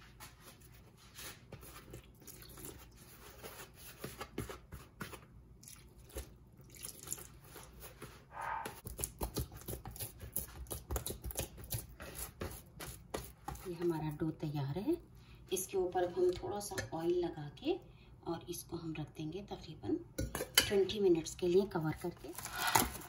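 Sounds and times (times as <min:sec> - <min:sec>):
dough being kneaded: 0:00.0 - 0:05.5, 0:07.0 - 0:14.8.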